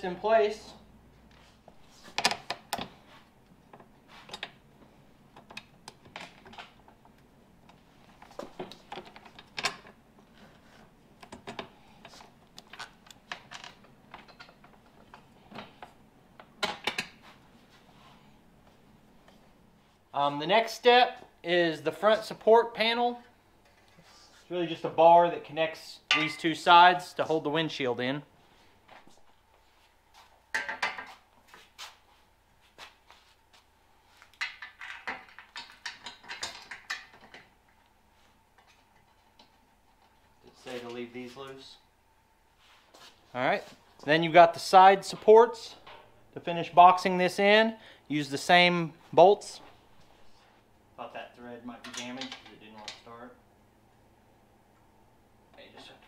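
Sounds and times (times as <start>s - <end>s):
metal bar clanking against frame: 26.1s - 26.5s.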